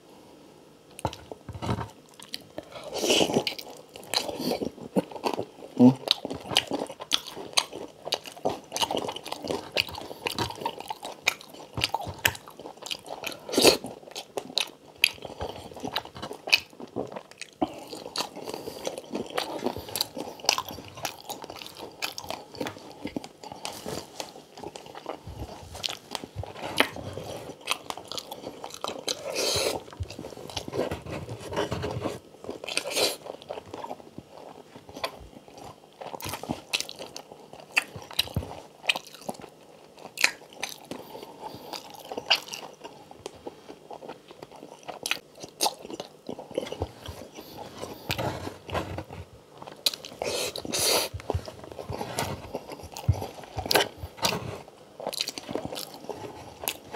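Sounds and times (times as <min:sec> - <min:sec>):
wet chewing: 0:01.0 - 0:54.3, 0:55.0 - 0:56.9.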